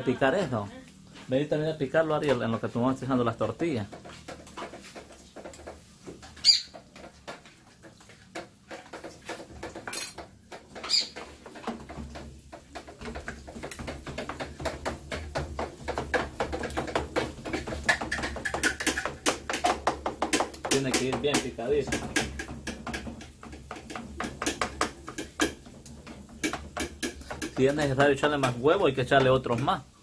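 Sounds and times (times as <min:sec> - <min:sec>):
utensil clinking on cookware: 0:02.2 - 0:29.8
spoon scraping a frying pan: 0:03.4 - 0:29.7.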